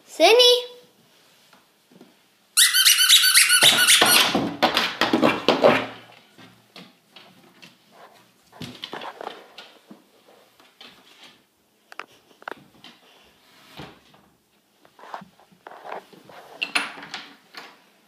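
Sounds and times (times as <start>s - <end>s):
dog toy squeaking: 2.6s - 4.4s
faint scuffing and rustling: 12.1s - 16.6s.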